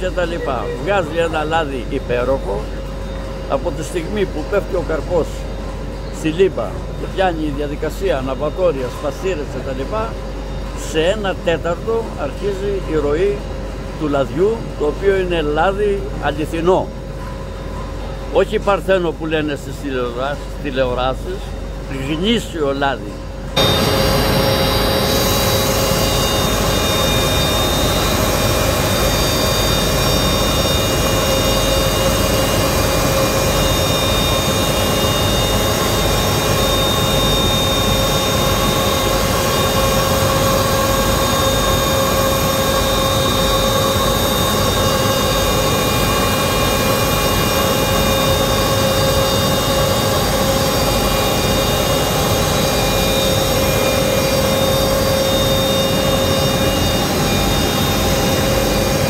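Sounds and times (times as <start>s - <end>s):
centrifuge high whining: 0.0s - 14.0s, 23.2s - 59.0s
machinery humming: 0.0s - 59.0s.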